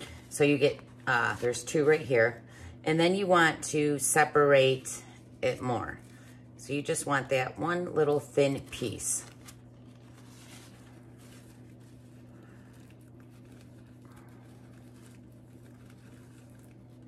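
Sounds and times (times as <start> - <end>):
paper napkin rustling: 0.0 - 2.0, 7.4 - 17.0
low steady hum: 0.0 - 17.0.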